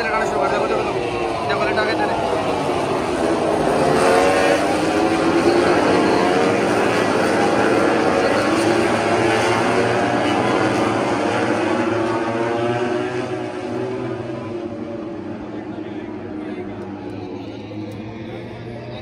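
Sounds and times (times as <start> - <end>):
racing motorcycles passing at high revs: 0.0 - 15.4.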